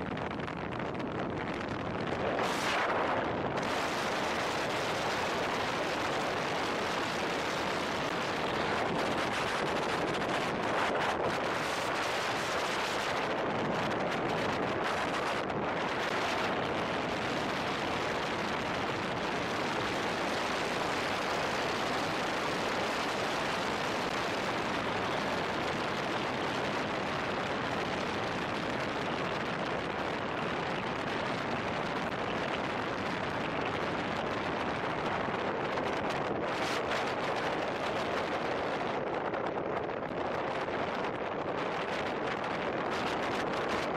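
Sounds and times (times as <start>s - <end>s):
car tyre noise at speed: 0.0s - 43.9s
wind rushing: 0.1s - 16.8s.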